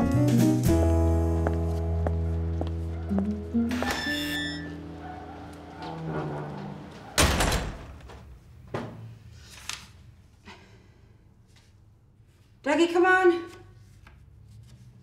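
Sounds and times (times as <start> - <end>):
door slamming: 5.1 - 9.0.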